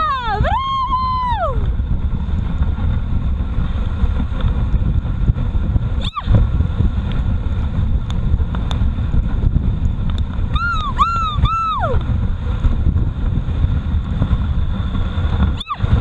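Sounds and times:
sled rushing over snow: 0.0 - 16.0
wind buffeting microphone: 0.0 - 16.0.

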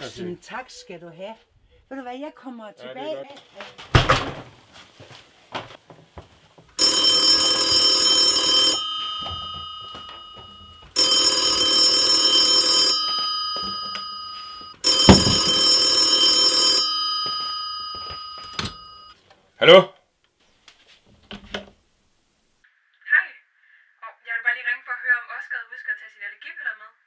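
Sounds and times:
thump: 3.9 - 4.5, 15.1 - 15.6
telephone bell ringing: 6.8 - 19.2.

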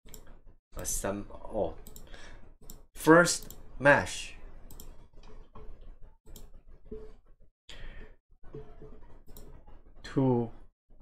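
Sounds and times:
computer mouse clicking: 1.9 - 2.8, 3.4 - 3.6, 4.7 - 5.4, 9.3 - 9.6
soft breath: 7.7 - 8.2.

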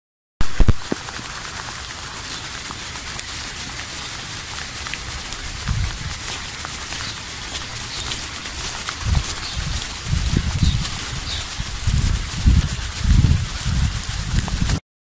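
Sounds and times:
rain on wet pavement: 0.4 - 14.8.

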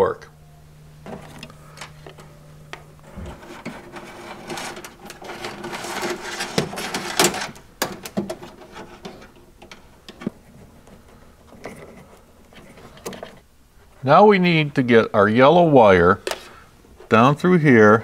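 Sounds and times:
low hum: 0.0 - 15.7
wire scraping against sheet metal: 3.0 - 10.2.

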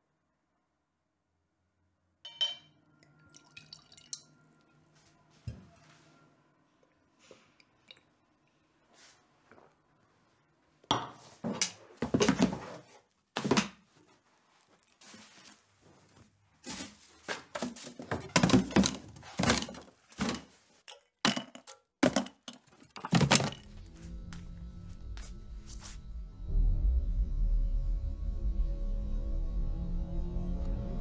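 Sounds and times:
objects set down on hard surfaces: 16.7 - 23.6
low music: 23.6 - 31.0.

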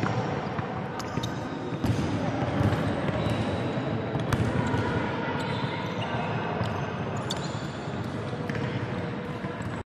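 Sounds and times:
basketballs bouncing on wooden floor: 1.7 - 3.4.

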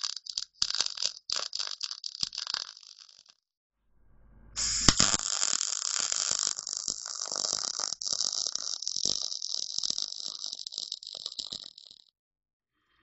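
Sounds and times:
arc striking pop: 4.5 - 5.3
welder arc crackling: 4.6 - 12.1.

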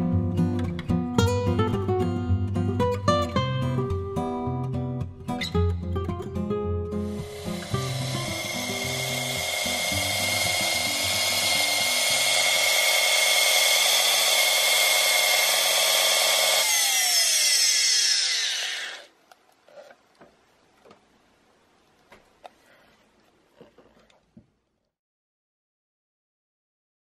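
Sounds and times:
router motor whining: 7.1 - 19.1.

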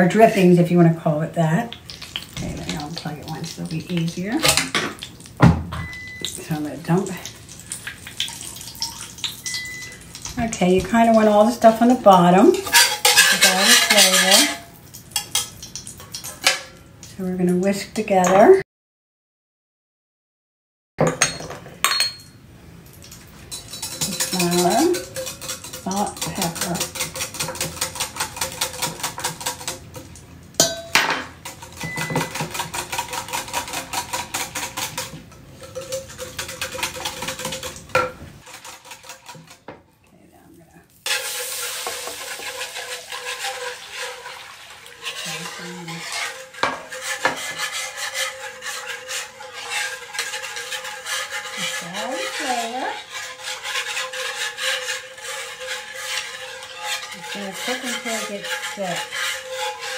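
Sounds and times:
mixture pouring into skillet: 7.3 - 10.4, 41.0 - 59.9
whisk scraping across pan: 10.2 - 15.5, 23.4 - 30.1, 31.4 - 39.7, 41.0 - 59.9
whisk beating in glass bowl: 12.6 - 14.6, 23.5 - 29.9, 31.4 - 39.6, 41.8 - 59.9.

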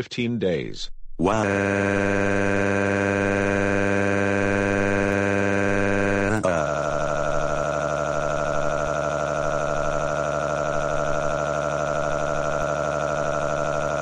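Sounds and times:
synthetic voice wailing: 1.2 - 3.9, 6.3 - 7.0.

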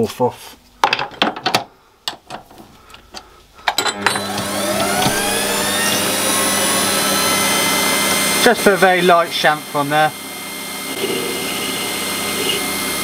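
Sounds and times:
lathe motor whining: 3.8 - 13.0.

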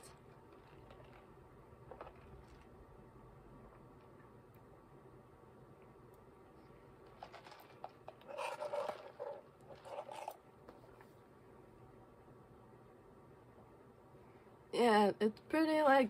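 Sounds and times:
slurping through a straw: 7.3 - 10.4.

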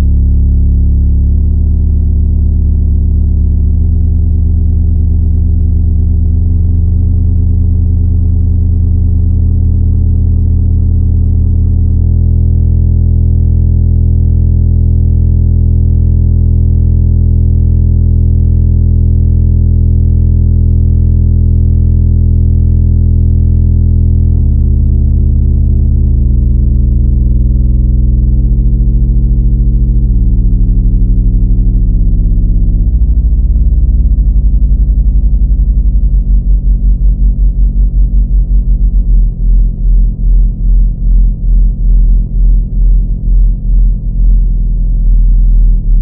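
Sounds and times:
deep synthesizer drone: 0.0 - 46.0.

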